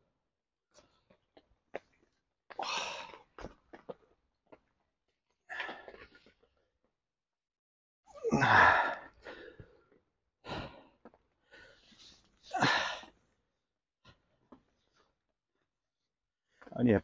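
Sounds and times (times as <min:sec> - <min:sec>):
man breathing heavily and sighing: 0:02.5 - 0:03.4, 0:05.4 - 0:06.4, 0:08.1 - 0:13.3.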